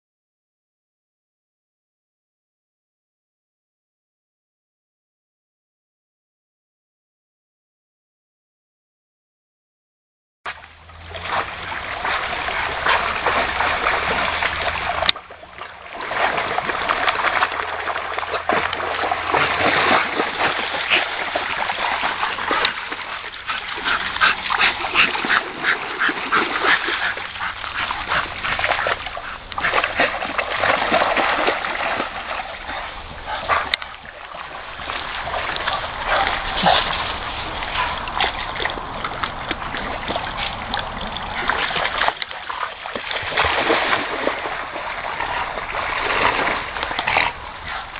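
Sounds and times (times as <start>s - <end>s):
dogs splashing in water: 10.5s - 47.9s.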